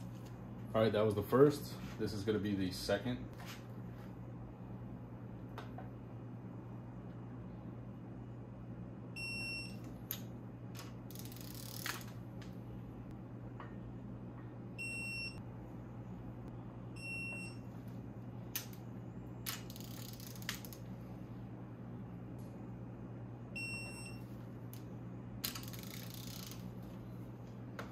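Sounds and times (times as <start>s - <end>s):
torque wrench beeps: 9.2s - 9.8s, 14.8s - 15.4s, 23.6s - 24.2s
ratchet clicking and rattling: 10.8s - 12.2s, 19.5s - 20.8s, 25.4s - 26.7s.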